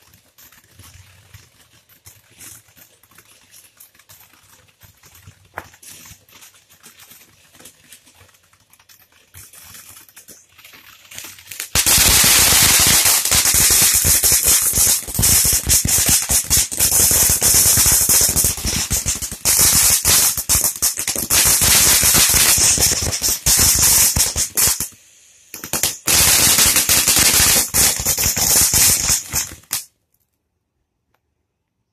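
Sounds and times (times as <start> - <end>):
firework crackling: 0.0 - 30.0
firework hissing: 4.9 - 8.1, 8.9 - 29.9.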